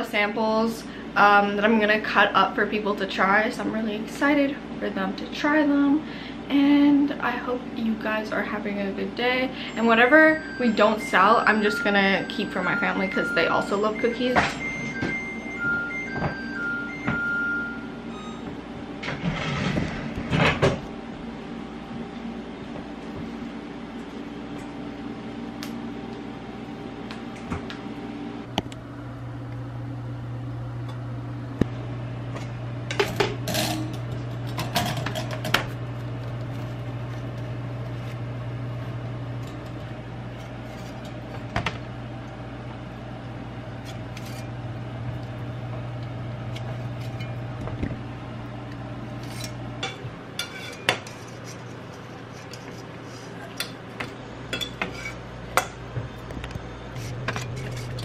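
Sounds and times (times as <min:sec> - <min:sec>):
low steady hum: 0:00.0 - 0:58.0
pans and dishes clanking: 0:19.1 - 0:20.8
metal spatula scraping baking sheet: 0:19.2 - 0:20.0, 0:50.4 - 0:53.4, 0:57.0 - 0:58.0.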